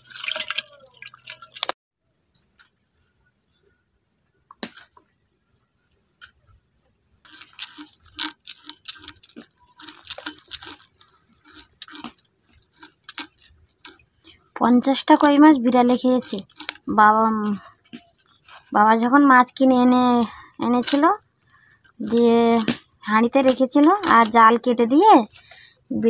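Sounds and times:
water splashing in metal bowl: 0:00.0 - 0:01.8.

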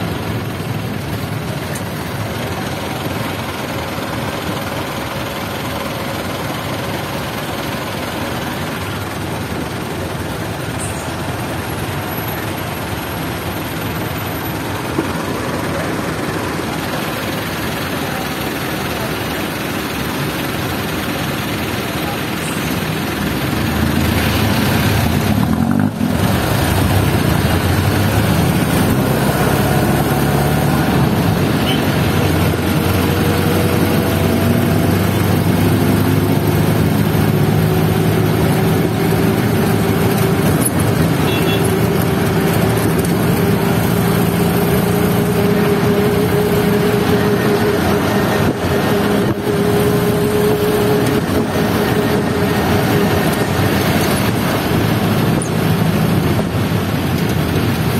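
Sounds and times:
road noise: 0:00.0 - 0:57.9
vehicle engine drone: 0:00.0 - 0:57.9
whining engine note: 0:23.2 - 0:55.5.

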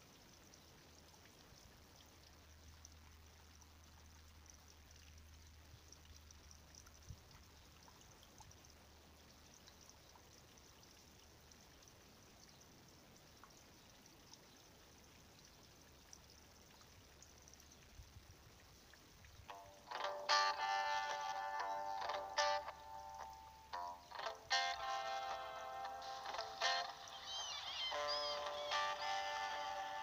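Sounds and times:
faint ticks: 0:00.0 - 0:27.2
faint steady hiss: 0:00.0 - 0:30.0.

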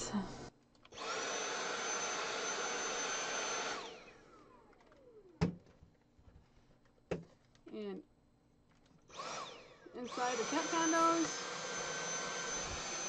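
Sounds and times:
cordless vacuum whining: 0:00.8 - 0:05.6, 0:09.1 - 0:13.0.

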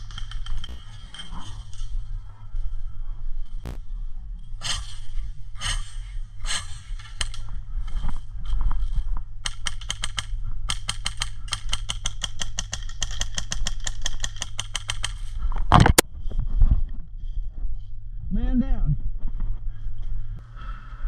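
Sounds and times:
airsoft guns firing: 0:00.0 - 0:01.0, 0:09.4 - 0:15.3
wind rumble on microphone: 0:00.0 - 0:10.8, 0:15.2 - 0:20.5.

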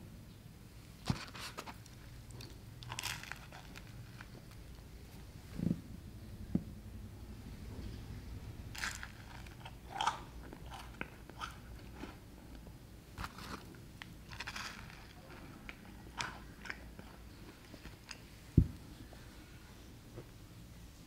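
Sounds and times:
crunchy bun chewing: 0:01.1 - 0:04.8, 0:08.8 - 0:18.2.

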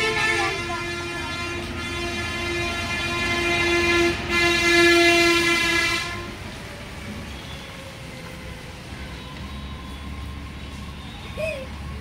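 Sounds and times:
horn long steady blast: 0:00.0 - 0:06.6.

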